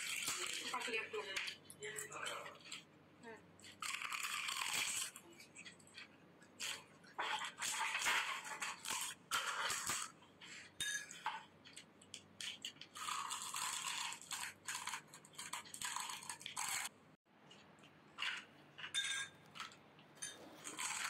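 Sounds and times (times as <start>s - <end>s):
crisp shells cracking and crunching: 0.0s - 1.0s, 3.6s - 5.7s, 11.7s - 16.9s, 20.6s - 21.0s.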